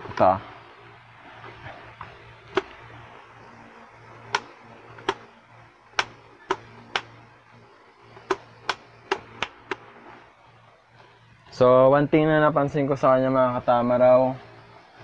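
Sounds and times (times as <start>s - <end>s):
hard plastic helmet vent clicks: 4.3s - 5.3s, 8.2s - 9.8s.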